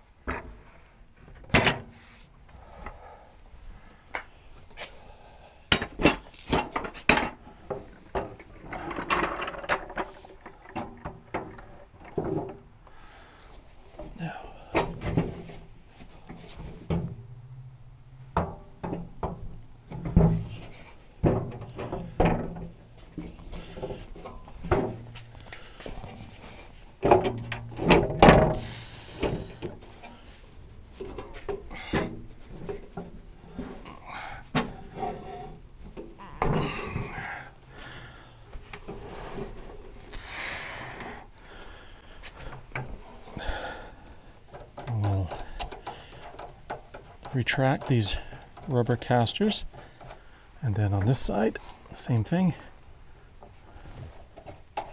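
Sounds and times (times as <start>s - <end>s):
low steady hum: 2.5s - 54.9s
person breathing hard: 2.6s - 5.8s, 12.8s - 15.0s, 28.5s - 30.4s, 31.7s - 32.2s, 33.4s - 35.0s, 36.6s - 44.4s
metal clunks and knocks: 5.7s - 12.7s, 14.0s - 30.2s, 34.5s - 37.4s.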